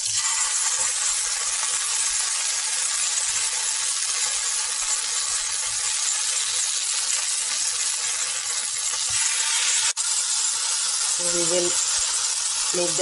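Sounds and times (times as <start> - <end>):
tofu sizzling in hot oil: 0.0 - 13.0.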